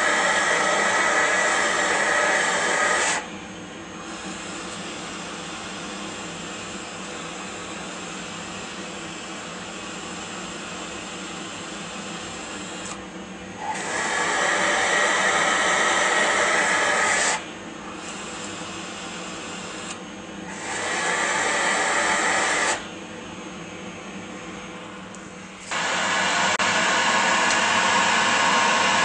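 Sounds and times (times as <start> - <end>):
vacuum suction air rush: 0.0 - 5.8, 12.3 - 23.1, 24.0 - 29.0.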